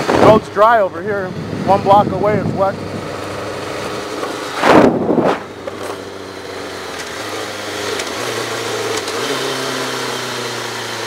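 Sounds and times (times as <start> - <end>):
loud rush of noise: 0.0 - 6.7
motorcycle engine running: 0.0 - 11.0
wind and road noise: 0.0 - 11.0.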